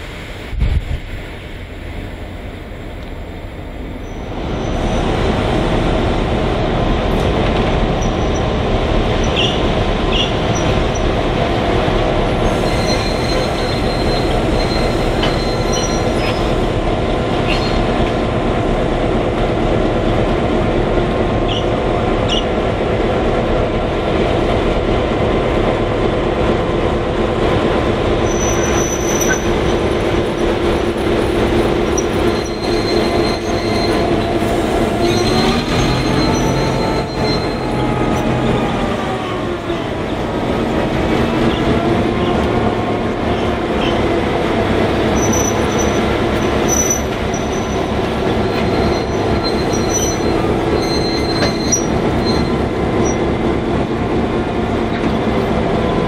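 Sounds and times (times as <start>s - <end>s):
diesel locomotive engine drone: 0.0s - 56.0s
wheel flange squeals: 9.2s - 11.1s, 12.4s - 16.6s, 17.4s - 17.9s, 28.2s - 30.6s, 31.8s - 38.3s, 45.1s - 53.3s.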